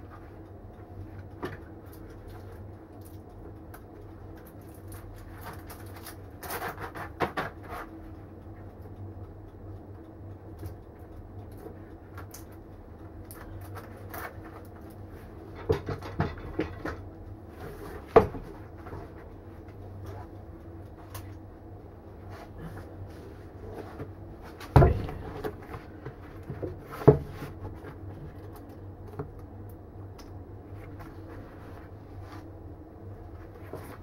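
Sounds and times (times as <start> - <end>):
steady low hum: 0.0 - 34.0
metal clanks and knocks: 15.5 - 17.1, 24.7 - 25.6.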